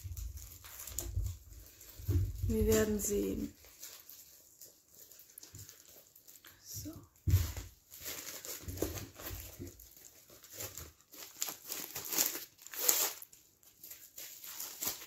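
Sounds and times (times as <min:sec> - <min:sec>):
plastic mailer bag crinkling: 0:00.0 - 0:15.0.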